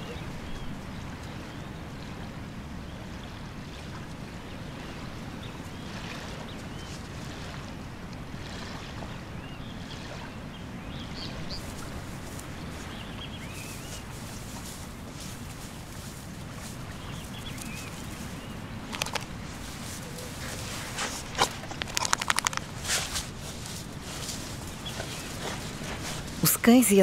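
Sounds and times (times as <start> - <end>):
small waves lapping on shore: 0.0 - 27.0
wind: 0.0 - 27.0
dog digging in sand: 11.6 - 26.5.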